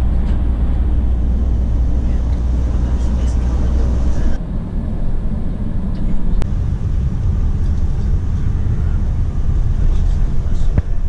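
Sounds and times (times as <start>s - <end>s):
coach engine rumble and tyre noise: 0.0s - 11.0s.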